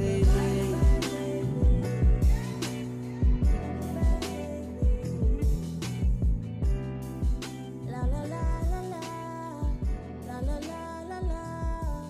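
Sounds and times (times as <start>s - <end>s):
deep bass drum hits: 0.0s - 2.6s, 3.2s - 4.2s, 4.8s - 7.4s, 8.0s - 8.8s, 9.6s - 10.6s
sustained chords and melody: 0.0s - 8.4s.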